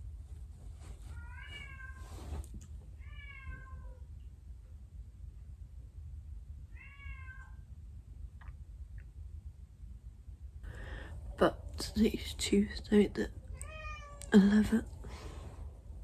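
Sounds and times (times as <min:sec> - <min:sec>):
pet animal meowing: 0:13.6 - 0:14.4.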